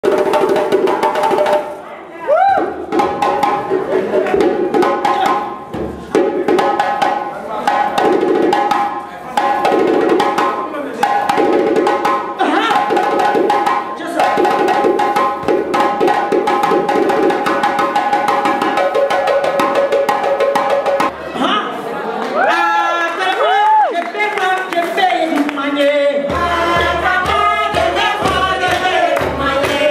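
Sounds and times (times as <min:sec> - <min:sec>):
djembe drumming with jingles: 0:00.0 - 0:01.8, 0:02.8 - 0:21.2, 0:26.3 - 0:29.9.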